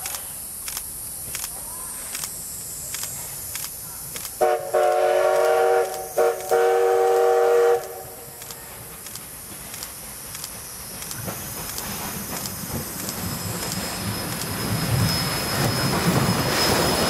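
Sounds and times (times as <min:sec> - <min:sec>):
steam locomotive whistle: 0:04.4 - 0:08.3.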